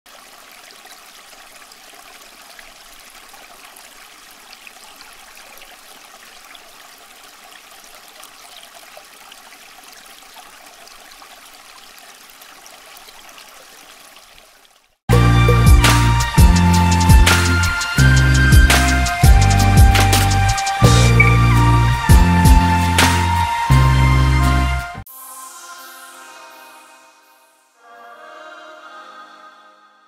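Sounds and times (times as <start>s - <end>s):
fountain water trickling: 0.1s - 15.1s.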